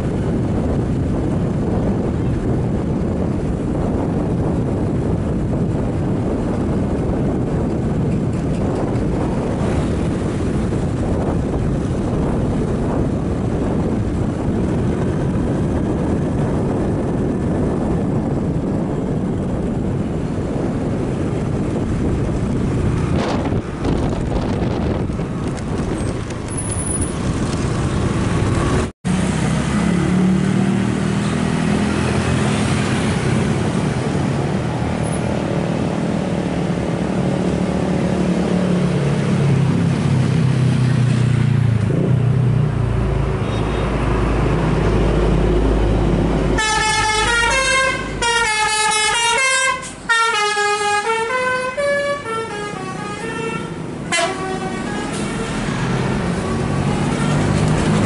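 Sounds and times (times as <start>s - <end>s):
bus diesel engines passing: 0.0s - 58.0s
wind rumbling on microphone: 0.0s - 58.0s
warbling bus horn tune: 46.6s - 55.7s.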